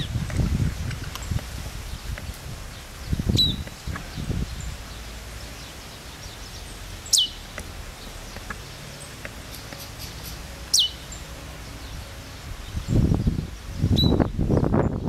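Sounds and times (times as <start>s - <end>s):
faint background hiss: 0.0s - 15.0s.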